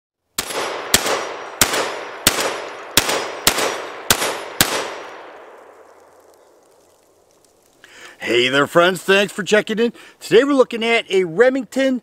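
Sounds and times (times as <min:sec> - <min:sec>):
shotgun shots echoing: 0:00.4 - 0:06.4.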